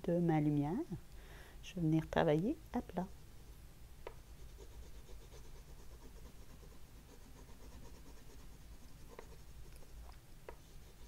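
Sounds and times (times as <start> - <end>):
pastel scratching on wood: 4.3 - 11.0.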